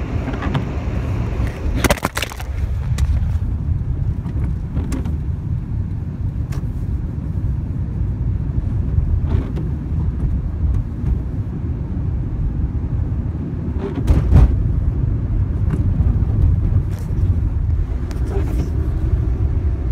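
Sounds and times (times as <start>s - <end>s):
car engine low rumble: 0.0s - 19.9s.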